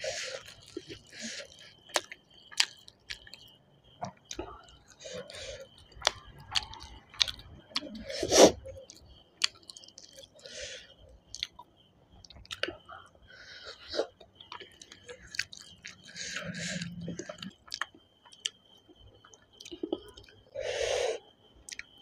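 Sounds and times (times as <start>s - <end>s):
person chewing food: 0.0s - 20.6s, 21.7s - 22.0s.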